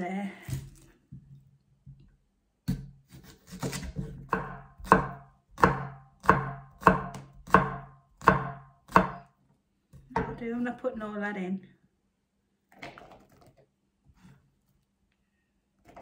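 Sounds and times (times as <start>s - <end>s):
knife chopping on wooden board: 2.6s - 9.3s.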